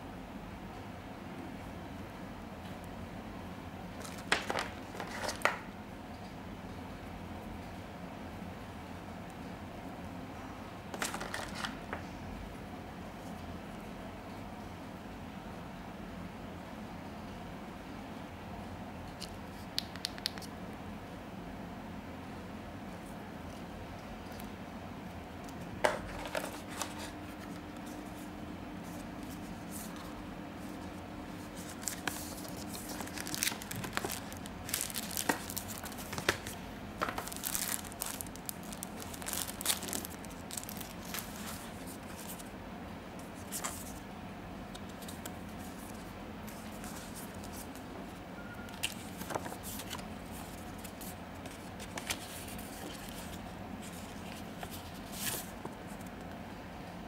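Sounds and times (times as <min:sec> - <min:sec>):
faint steady hum: 0:00.0 - 0:57.0
paper rustling and crinkling: 0:04.0 - 0:05.6, 0:10.9 - 0:12.0, 0:25.8 - 0:42.5, 0:43.2 - 0:44.0, 0:44.7 - 0:47.9, 0:48.7 - 0:56.2.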